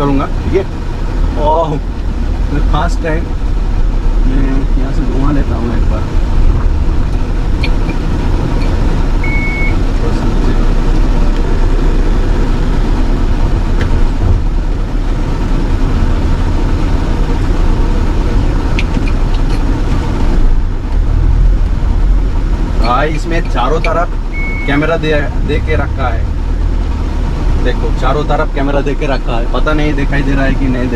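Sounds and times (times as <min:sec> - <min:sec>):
car engine and road noise: 0:00.0 - 0:30.9
short electronic beep: 0:09.2 - 0:09.8, 0:24.3 - 0:24.8.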